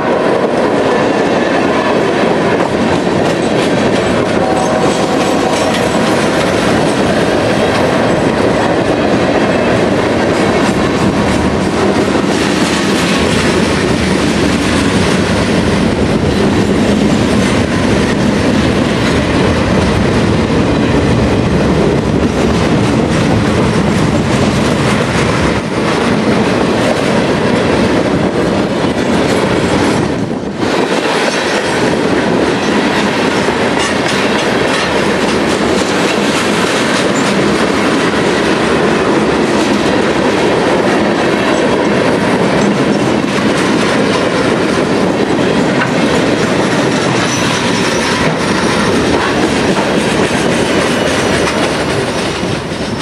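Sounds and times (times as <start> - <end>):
freight train rumbling past: 0.0 - 53.0
wheels clattering over rail joints: 22.0 - 53.0.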